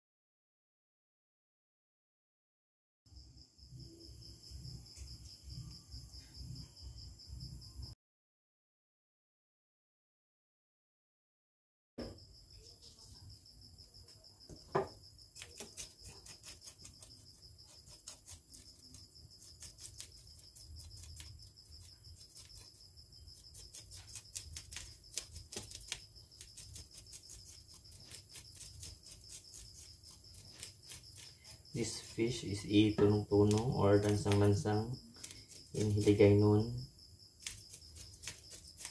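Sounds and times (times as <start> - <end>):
sharp knock: 12.0 - 12.2, 14.7 - 15.0
knife scraping fish scales: 15.3 - 32.6, 33.4 - 36.2, 37.4 - 38.9.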